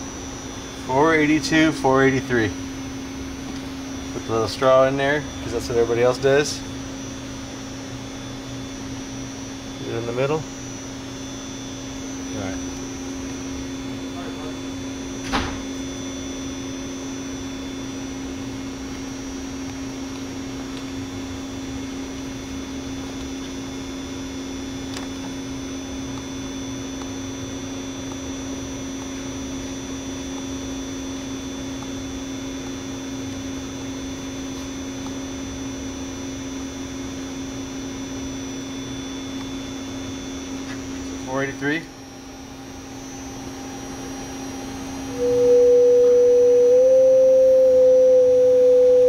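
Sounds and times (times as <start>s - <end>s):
steady electrical hum: 0.0s - 49.0s.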